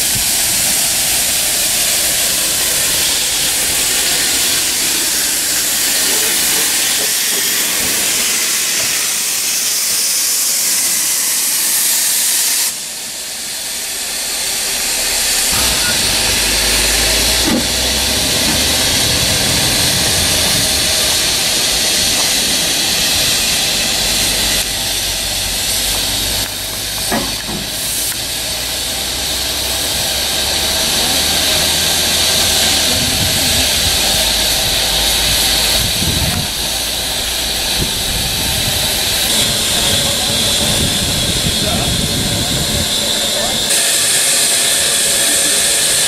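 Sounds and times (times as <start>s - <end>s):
steam locomotive hissing: 0.0s - 46.0s.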